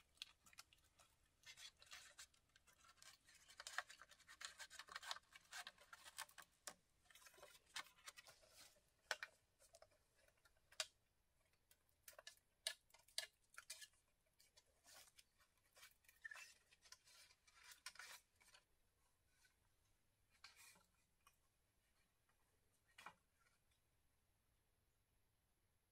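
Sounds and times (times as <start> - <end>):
bamboo poles clicking and tapping: 12.1 - 13.9.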